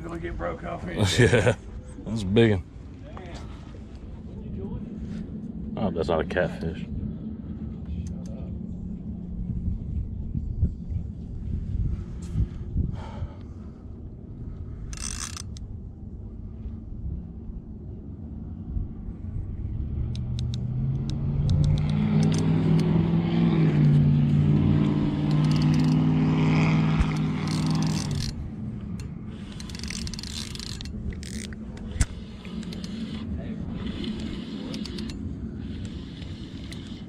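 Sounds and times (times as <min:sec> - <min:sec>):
fishing reel clicking and whirring: 0:14.9 - 0:15.6, 0:20.1 - 0:23.0, 0:24.8 - 0:26.2, 0:27.0 - 0:28.4, 0:29.0 - 0:37.0
motor engine passing by: 0:19.4 - 0:37.0.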